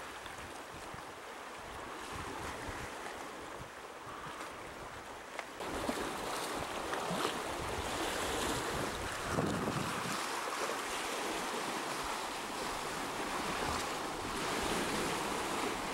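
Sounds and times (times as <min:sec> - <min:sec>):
sea water washing at shore: 0:00.0 - 0:15.9
wind buffeting microphone: 0:05.6 - 0:10.3.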